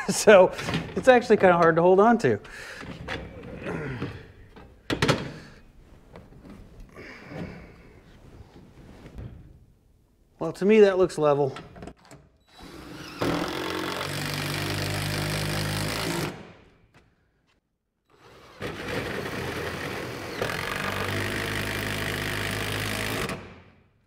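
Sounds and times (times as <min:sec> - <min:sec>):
cordless drill running: 0:12.5 - 0:16.4, 0:18.2 - 0:23.4.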